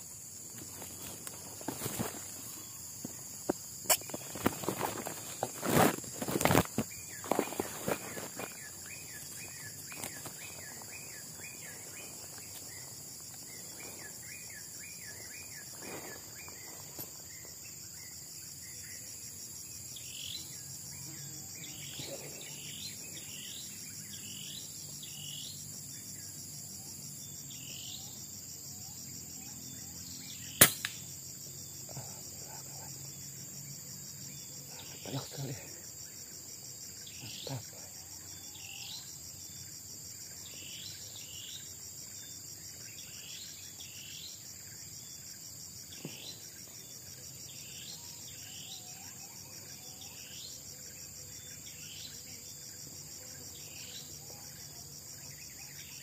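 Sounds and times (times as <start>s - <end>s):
insect drone: 0.0s - 56.0s
rustling in grass: 0.4s - 3.3s, 4.0s - 11.0s
birds chirping: 0.7s - 18.8s
air rifle shot: 30.6s - 31.0s.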